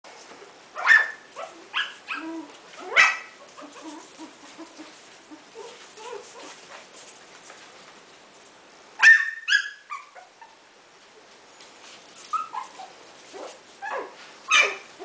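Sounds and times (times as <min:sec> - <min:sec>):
puppies squeaking and whimpering: 0:00.8 - 0:06.6, 0:12.2 - 0:15.0
puppies yipping: 0:00.8 - 0:06.6, 0:09.0 - 0:10.6, 0:12.2 - 0:15.0.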